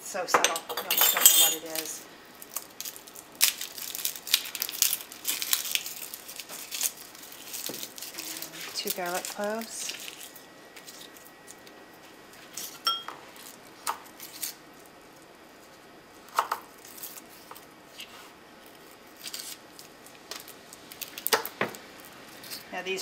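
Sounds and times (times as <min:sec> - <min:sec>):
short ringing clink: 0:00.7 - 0:01.7, 0:12.9 - 0:13.1.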